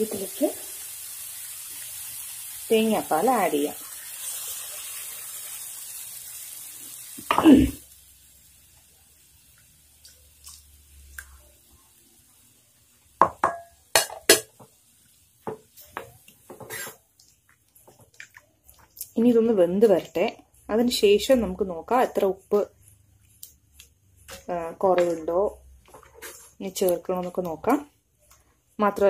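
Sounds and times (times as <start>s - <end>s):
liquid hissing in hot pan: 0.0s - 17.2s
wooden spatula scraping pan: 16.5s - 17.0s, 24.3s - 26.6s.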